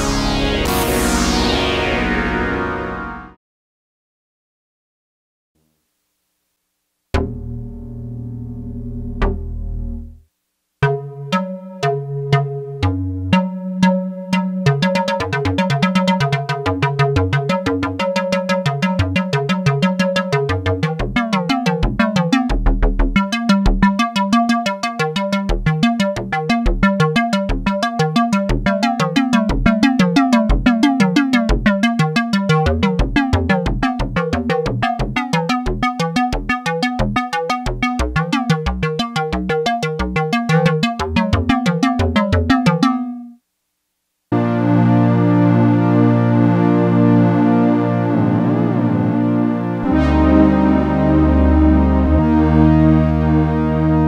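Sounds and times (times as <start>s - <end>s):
low synth bass: 0.0s - 3.4s, 7.2s - 10.2s, 32.5s - 42.8s, 44.4s - 54.0s
synthesizer repeating notes: 0.0s - 3.4s, 10.8s - 43.3s, 44.4s - 54.0s.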